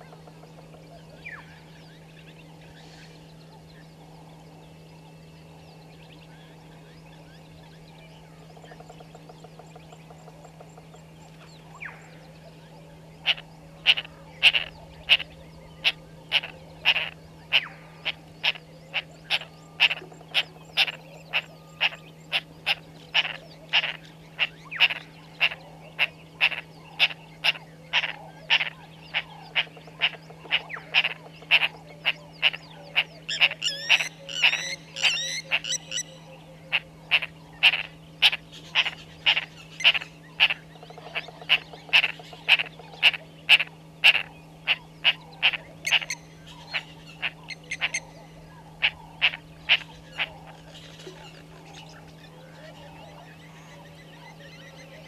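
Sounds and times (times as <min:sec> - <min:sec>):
frogs calling: 0:00.0 - 0:55.0.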